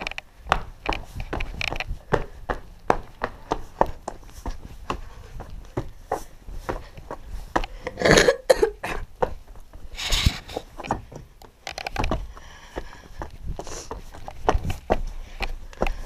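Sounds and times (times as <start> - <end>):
footsteps on loose rock: 0.0 - 7.8, 9.0 - 16.0
person coughing: 7.9 - 9.1.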